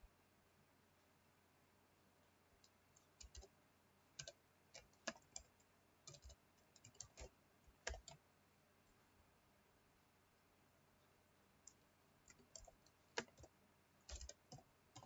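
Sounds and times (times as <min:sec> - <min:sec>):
keyboard keys clicking: 0:02.6 - 0:03.5, 0:04.2 - 0:08.2, 0:11.7 - 0:13.5, 0:14.1 - 0:15.0.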